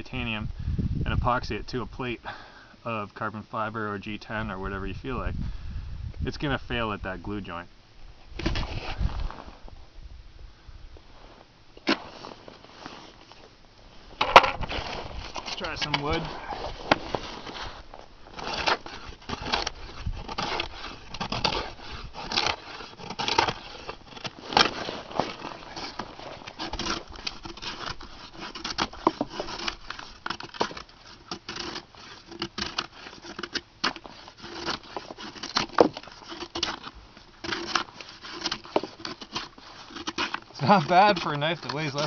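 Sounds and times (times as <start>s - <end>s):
knife scraping wood: 11.8s - 13.4s, 14.2s - 42.0s
wood cracking: 14.1s - 42.0s.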